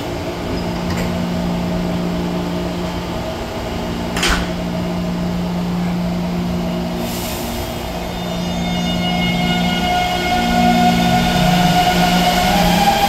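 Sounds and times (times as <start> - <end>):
traction motors whine: 4.6 - 13.0.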